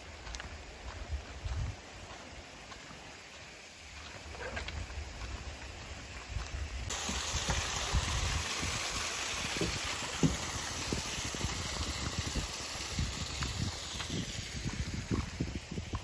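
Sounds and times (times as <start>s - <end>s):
waterfall splashing: 6.9s - 16.0s.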